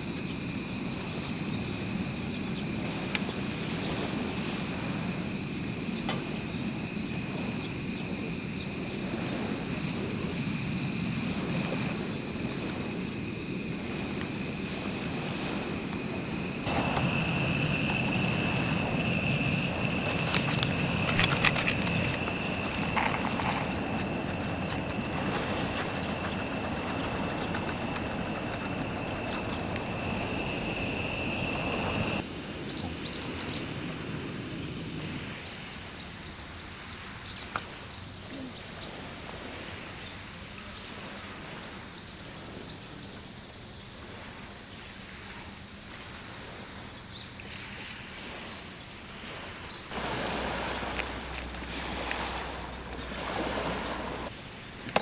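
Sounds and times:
waves washing: 0.0s - 37.9s, 44.0s - 55.0s
high-pitched insect chorus: 0.0s - 47.8s, 48.4s - 55.0s
wind: 0.0s - 55.0s
handling clicks and rustles: 16.7s - 30.0s.

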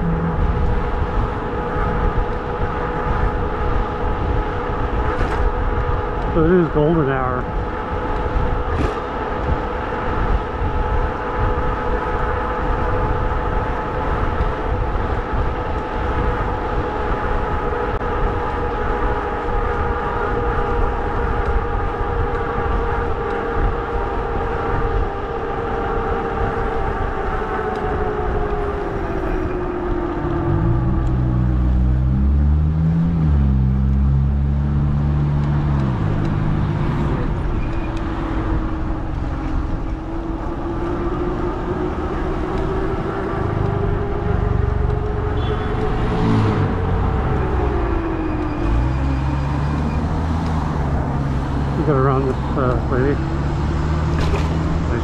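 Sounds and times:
deep droning hum: 0.0s - 6.8s, 28.0s - 48.5s
wind rush on microphone: 0.0s - 55.0s.

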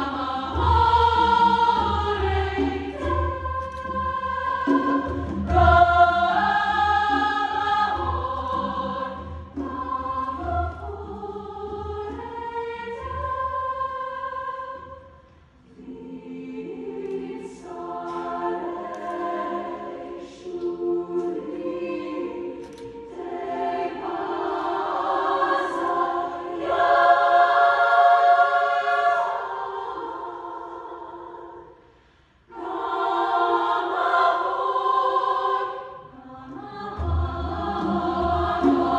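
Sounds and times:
women's choir singing: 0.0s - 38.9s.

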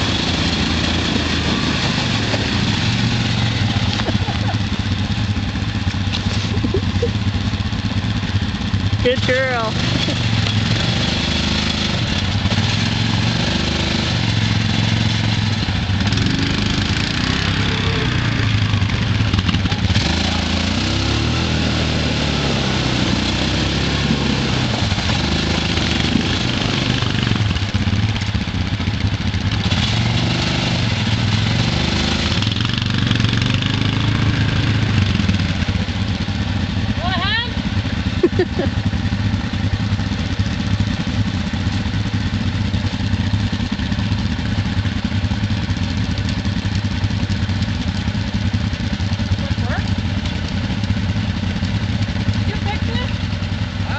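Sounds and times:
mud and water splashing: 0.0s - 7.2s, 9.2s - 37.0s
atv engines revving: 0.0s - 53.9s.

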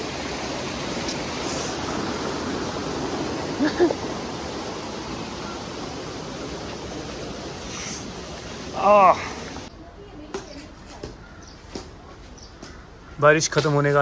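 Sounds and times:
mountain river rushing: 0.0s - 9.7s.

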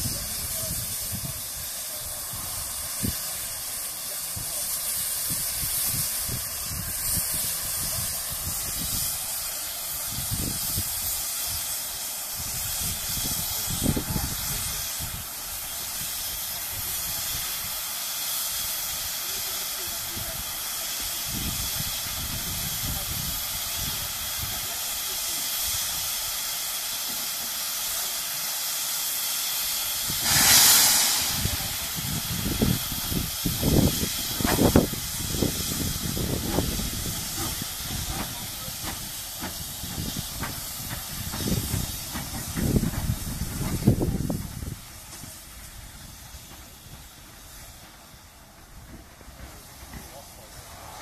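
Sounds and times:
loud steam blast: 0.0s - 51.0s
steam locomotive hissing: 0.0s - 51.0s
locomotive exhaust beats: 30.1s - 50.7s.

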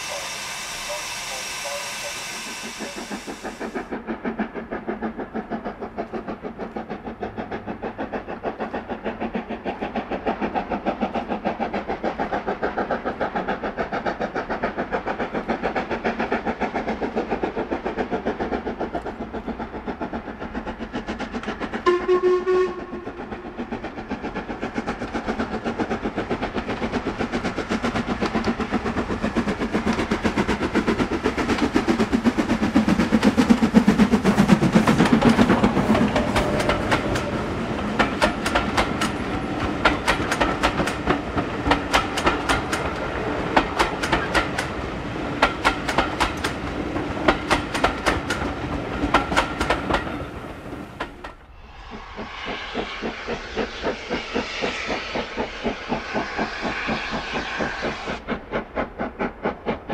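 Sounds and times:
steam whistle blast: 0.0s - 3.8s, 21.8s - 23.1s
steam locomotive exhaust beating: 0.0s - 59.9s.

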